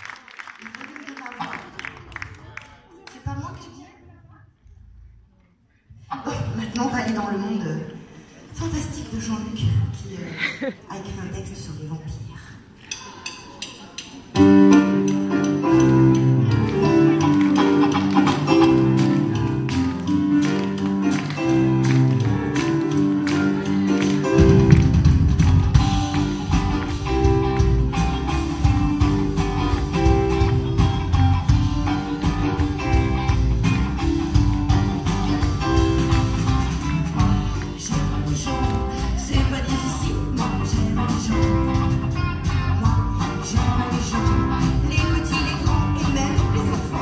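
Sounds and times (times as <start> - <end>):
live rock band: 14.0 - 47.0
picked guitar notes: 14.4 - 47.0.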